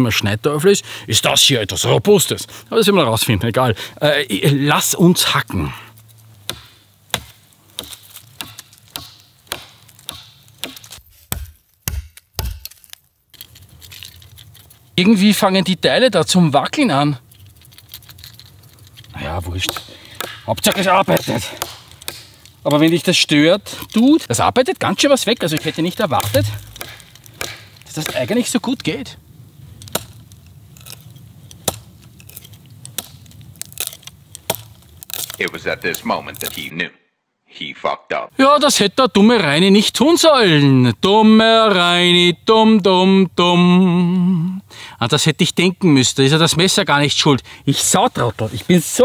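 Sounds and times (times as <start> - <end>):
knife chopping into wooden pole: 6.5 - 12.7, 25.5 - 28.3.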